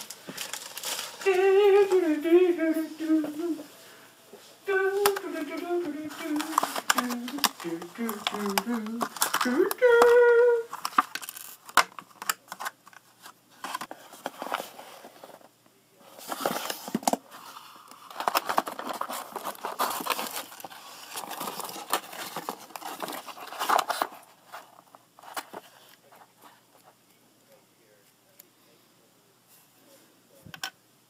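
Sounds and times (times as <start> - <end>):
plastic bag crinkling: 0.0 - 2.1, 4.9 - 14.8, 16.2 - 25.8
paper and cardboard rustling: 0.0 - 2.2, 4.7 - 27.0.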